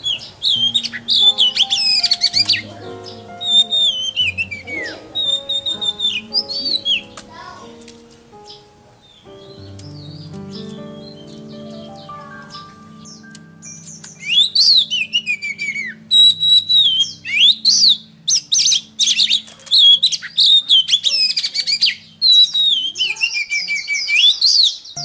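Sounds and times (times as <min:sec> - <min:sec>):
songbird singing: 0:00.0 - 0:25.0.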